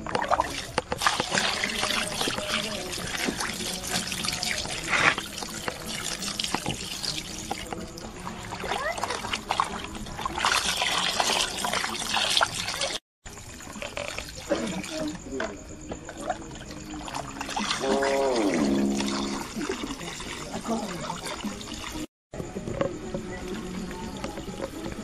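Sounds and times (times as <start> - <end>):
hands washing meat: 0.0 - 13.0
water pouring and splashing: 0.0 - 22.1.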